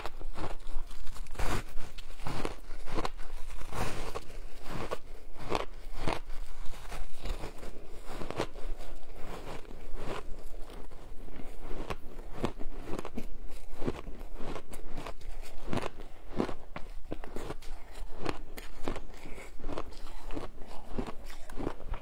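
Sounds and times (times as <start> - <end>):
shaved ice crunching: 0.1 - 8.6.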